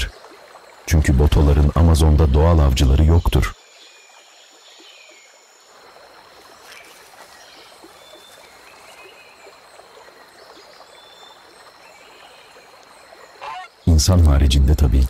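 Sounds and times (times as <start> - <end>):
river water running: 0.0 - 15.0.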